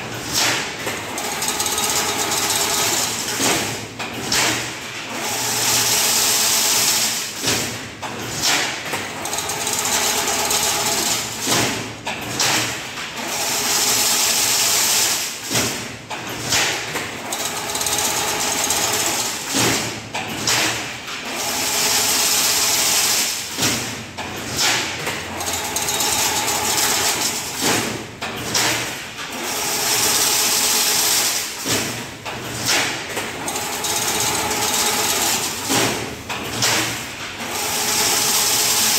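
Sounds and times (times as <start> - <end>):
machine clanks and knocks: 0.0 - 5.9, 7.2 - 14.1, 14.8 - 38.9
machine whirring: 0.1 - 4.3, 9.1 - 12.4, 17.2 - 20.4, 25.2 - 38.9.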